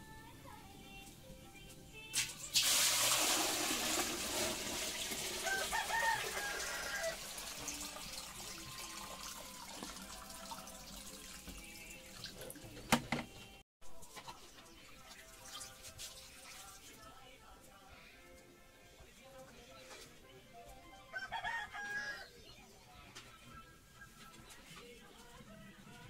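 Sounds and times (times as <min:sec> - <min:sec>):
water pouring and splashing: 0:02.2 - 0:12.7, 0:14.9 - 0:17.0.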